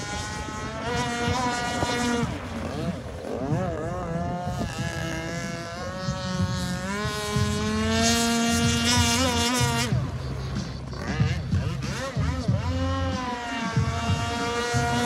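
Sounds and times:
model boat engine running: 0.0 - 15.0.

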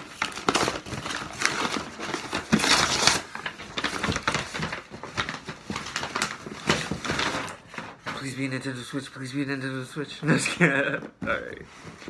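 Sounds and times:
paper ripping and rustling: 0.0 - 8.8.

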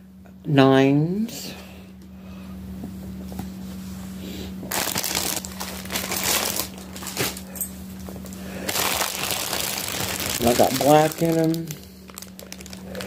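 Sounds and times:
plastic packaging crinkling: 4.7 - 7.5, 8.2 - 13.0.

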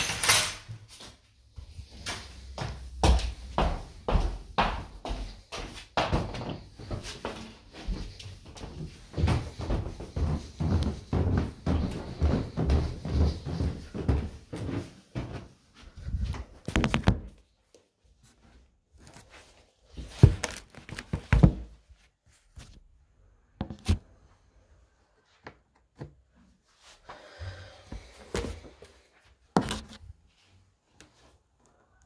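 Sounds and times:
footsteps on carpeted stairs: 0.9 - 19.3.

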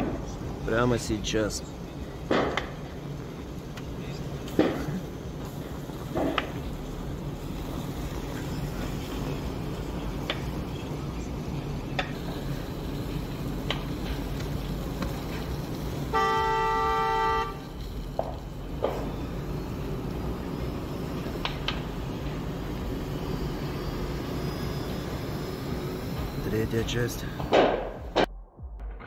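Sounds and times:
low outdoor rumble: 0.0 - 29.0
vehicle horn: 16.0 - 17.8.

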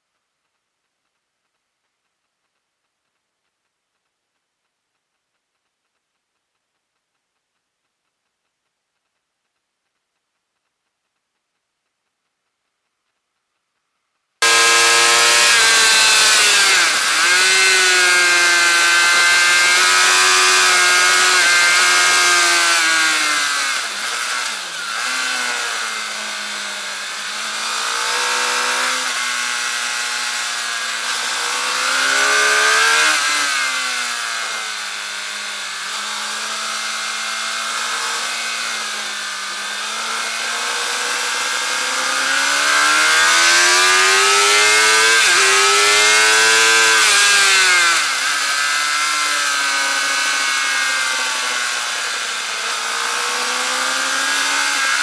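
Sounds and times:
motorcycle engine revving: 14.4 - 55.0.

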